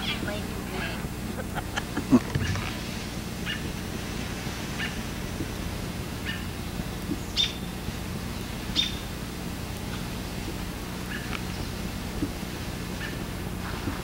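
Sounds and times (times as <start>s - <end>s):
steady low hum: 0.0s - 14.0s
high-pitched animal calls: 7.2s - 7.7s, 8.7s - 9.1s, 11.0s - 11.4s.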